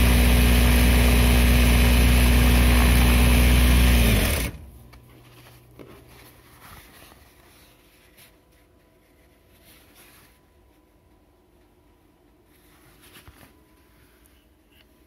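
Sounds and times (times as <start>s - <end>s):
sewing machine stopping: 0.0s - 4.7s
fabric rustling: 5.1s - 15.0s.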